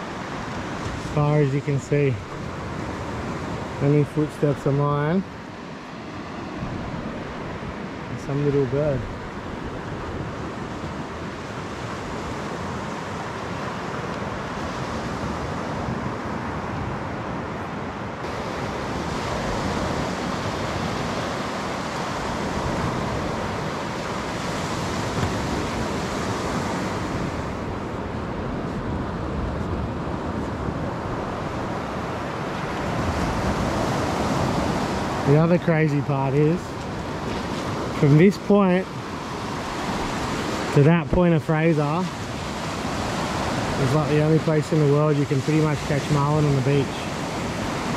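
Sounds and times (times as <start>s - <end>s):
surf washing onto beach: 0.0s - 47.9s
wind on microphone: 5.6s - 41.2s.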